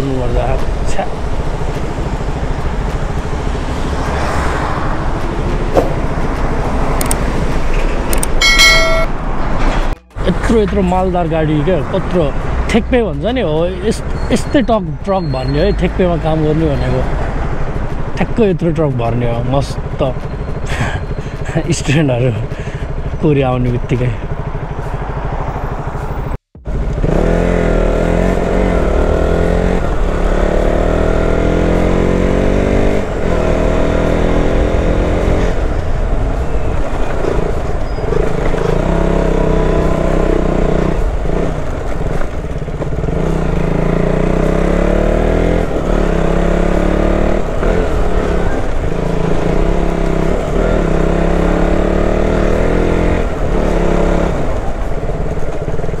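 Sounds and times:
motorcycle engine revving through gears: 0.0s - 21.6s, 22.4s - 56.0s.

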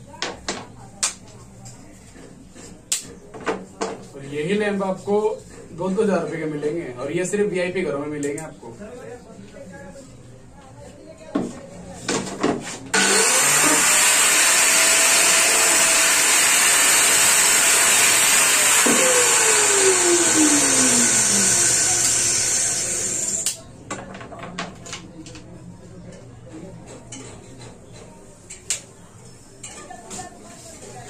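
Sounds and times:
angle grinder running: 13.0s - 23.6s.

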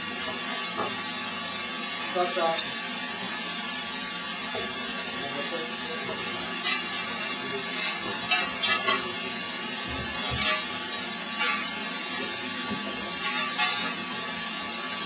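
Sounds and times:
furnace roaring and crackling: 0.0s - 15.0s
iron tools scraping and knocking: 10.0s - 10.7s.

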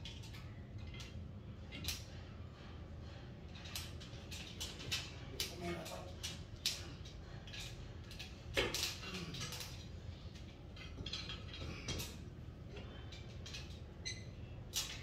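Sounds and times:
metal hardware clinking and scraping: 3.5s - 13.8s.

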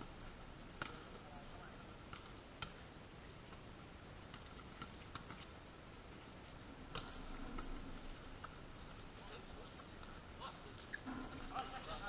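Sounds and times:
volleyball serve slap: 6.9s - 7.8s.

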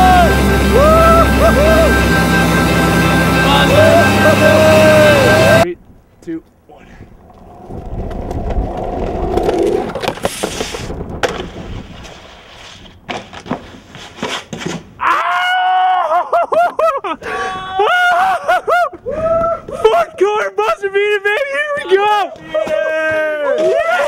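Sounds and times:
people shouting excitedly: 0.0s - 2.0s, 3.5s - 5.6s, 21.8s - 24.0s
snowboard scraping over snow: 7.4s - 13.0s.

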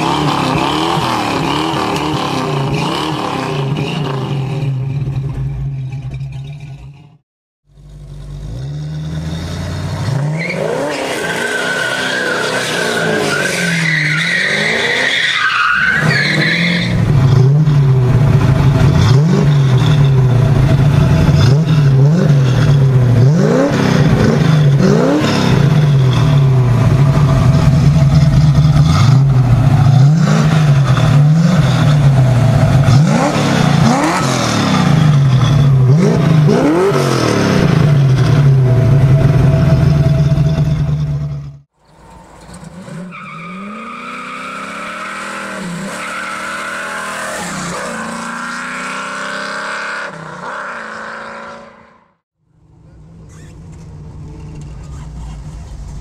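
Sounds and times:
car engine revving: 7.8s - 52.2s.

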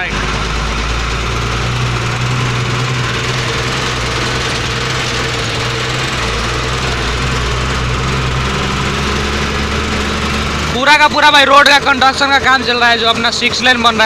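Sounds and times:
road noise rushing: 0.0s - 14.0s
truck diesel engine humming: 0.0s - 14.0s.

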